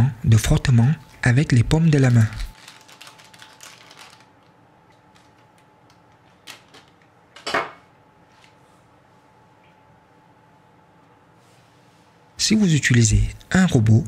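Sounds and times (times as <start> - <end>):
faint rustles and small clicks: 2.0 - 7.1.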